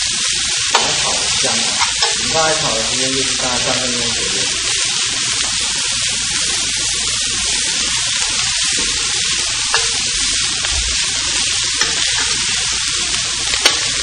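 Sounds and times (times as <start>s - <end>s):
greens sizzling in a wok: 0.0s - 14.0s
spatula scraping a wok: 4.5s - 14.0s.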